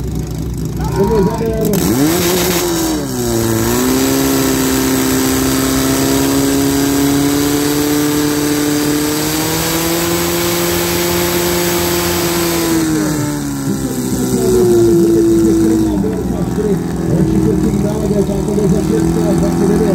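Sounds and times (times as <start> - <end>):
pump engine running hard: 0.0 - 19.9
voices: 0.7 - 2.8, 13.4 - 19.9.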